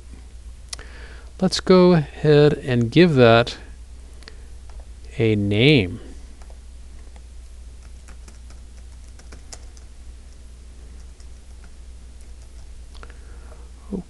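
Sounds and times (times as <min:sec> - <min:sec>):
steady low hum: 0:00.0 - 0:14.0
keyboard typing clicks: 0:07.8 - 0:09.9.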